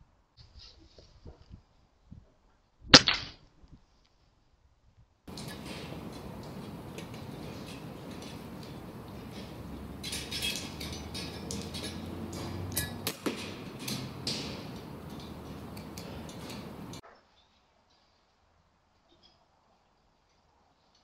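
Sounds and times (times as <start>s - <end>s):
steady hiss: 5.3s - 12.3s.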